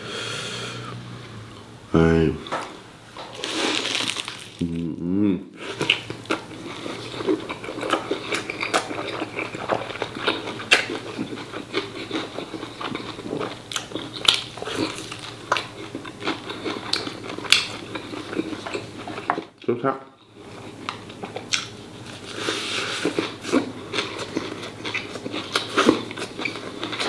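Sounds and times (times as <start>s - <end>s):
person humming: 4.6s - 5.5s
chewing and mouth noises: 5.6s - 19.5s, 20.2s - 27.0s.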